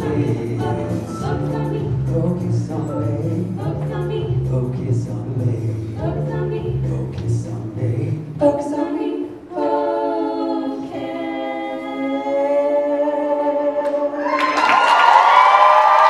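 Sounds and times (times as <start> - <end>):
voices singing in harmony: 0.0 - 14.7
audience cheering and applause: 14.2 - 16.0.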